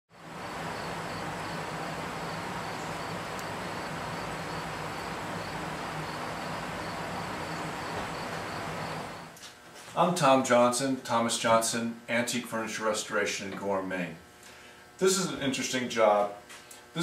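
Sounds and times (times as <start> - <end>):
crickets chirping: 0.2 - 9.4.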